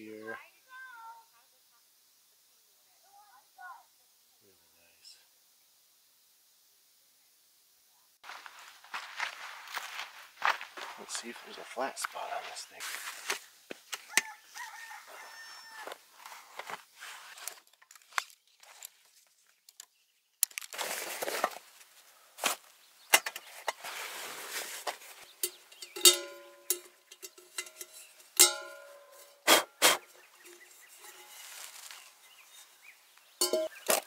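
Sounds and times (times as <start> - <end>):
fabric sack rustling: 23.8 - 25.3, 31.1 - 32.7
metal clinks: 25.3 - 29.4, 33.4 - 33.8.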